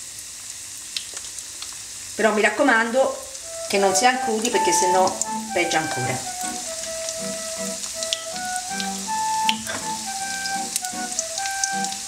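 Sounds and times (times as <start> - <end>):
chicken frying in hot oil: 0.0 - 12.0
background music with held notes: 3.4 - 12.0.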